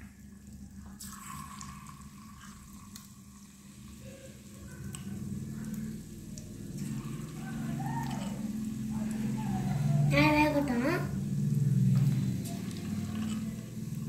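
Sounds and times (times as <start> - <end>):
food deep-frying in oil: 0.0 - 14.0
low hum: 4.1 - 14.0.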